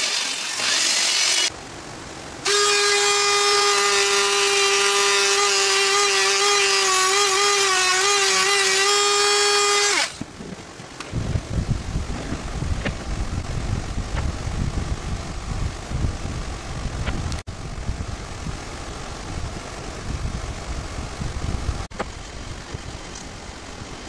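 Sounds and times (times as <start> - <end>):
rotary tool whining: 0.0 - 1.5, 2.4 - 10.3.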